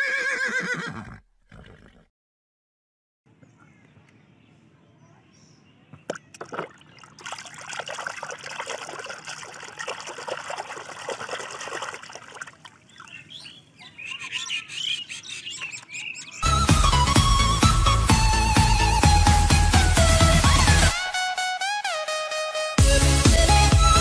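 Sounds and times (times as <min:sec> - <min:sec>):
water splashing in a tub: 0:06.1 - 0:13.2
high bird-like chirps: 0:12.8 - 0:16.5.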